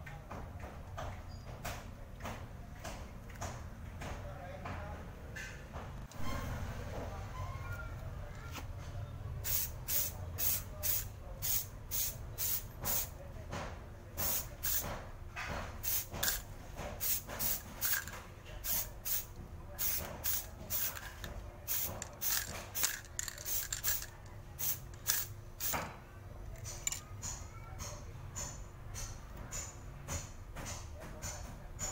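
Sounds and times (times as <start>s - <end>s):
spray paint can bursts: 9.4s - 13.1s, 14.2s - 14.9s, 15.8s - 25.9s.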